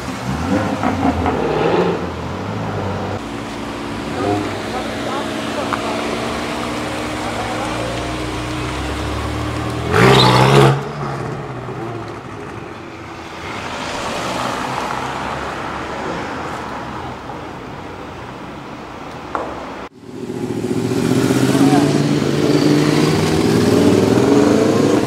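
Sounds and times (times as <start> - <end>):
another engine: 0.0 - 13.2
car engine revving: 0.0 - 16.0, 20.0 - 25.0
cars driving by: 0.0 - 25.0.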